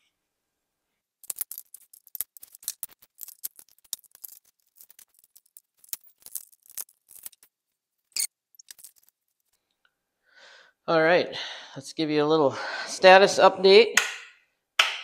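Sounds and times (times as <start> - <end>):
hands rattling wires and connectors: 1.2 - 9.8.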